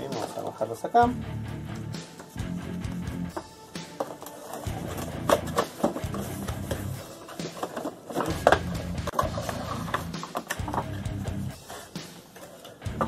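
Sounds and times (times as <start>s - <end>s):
guitar music: 1.1s - 3.6s, 8.3s - 11.6s.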